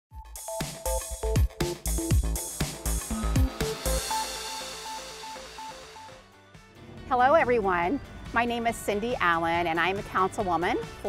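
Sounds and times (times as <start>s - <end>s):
intro theme music: 0.2s - 7.1s
short melodic notes: 2.0s - 6.4s.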